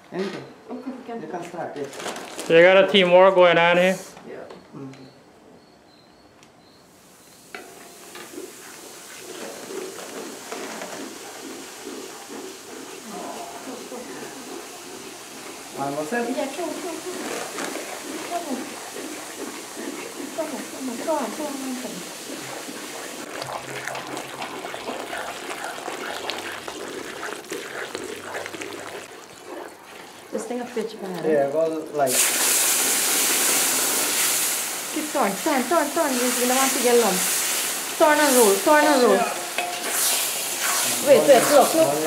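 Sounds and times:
batter crackling: 1.8 - 3.1, 7.3 - 42.0
flour sizzling in hot fat: 6.7 - 42.0
wooden spoon scraping a pan: 7.6 - 33.0, 35.0 - 42.0
liquid pouring and sloshing: 7.6 - 42.0.

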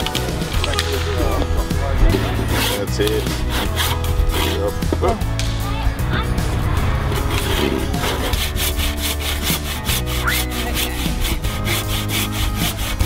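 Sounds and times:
hand saw cutting wood: 2.0 - 5.2, 7.1 - 13.0.

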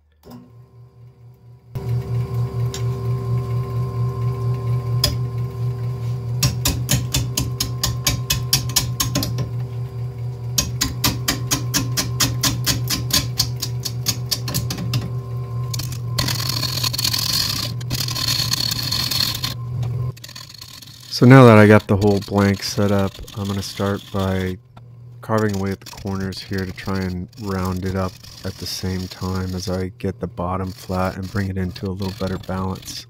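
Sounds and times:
wood lathe motor hum: 0.5 - 33.0
rapid even clicks: 15.8 - 24.6, 25.2 - 29.9
loud hissing scrape: 20.2 - 24.6.

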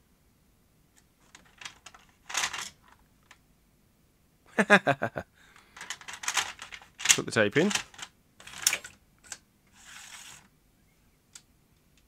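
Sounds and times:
noisy rustle: 0.9 - 3.4, 9.7 - 10.5.

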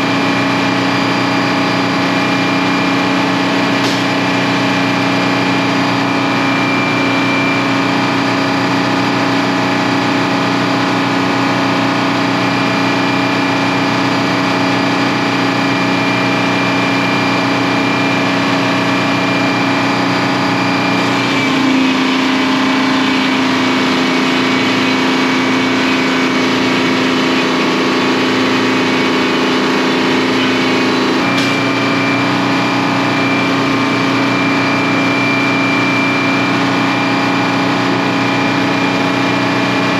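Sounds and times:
sawmill machinery humming and whining: 0.0 - 39.9.

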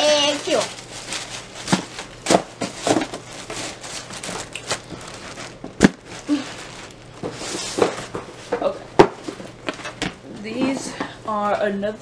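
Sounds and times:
paper rustling and crinkling: 0.0 - 8.6.

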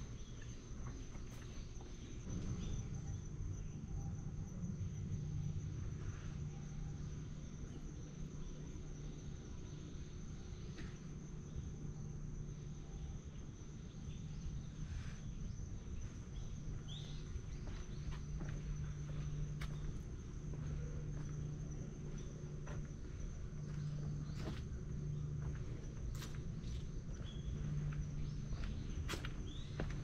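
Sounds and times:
low background rumble: 0.0 - 30.0
crickets shrilling: 13.3 - 30.0.

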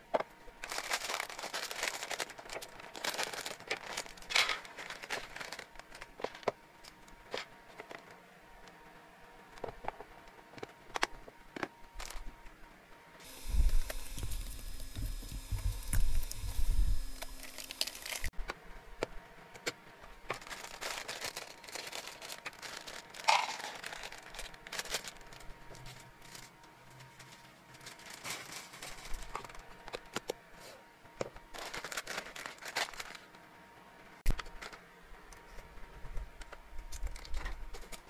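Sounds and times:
plastic bag crinkling: 0.6 - 6.4, 13.3 - 18.3, 20.3 - 29.6, 31.5 - 33.3
hard pieces rattling into plastic jar: 20.4 - 25.1.

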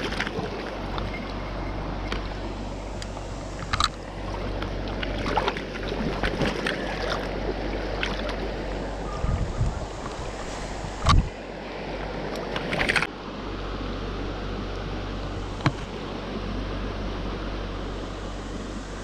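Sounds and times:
water splashes: 0.0 - 13.1.

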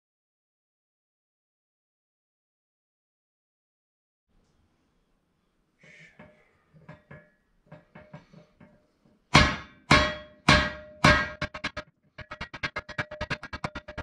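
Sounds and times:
mallet striking metal rod: 9.3 - 14.0.

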